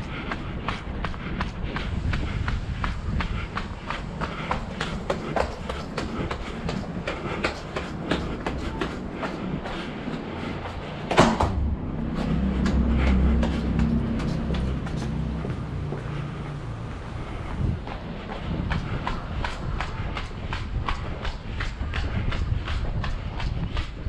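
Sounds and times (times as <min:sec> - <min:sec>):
footsteps climbing stairs: 0:00.0 - 0:24.0
low rumble: 0:00.0 - 0:24.0
sharp knock: 0:11.1 - 0:11.7.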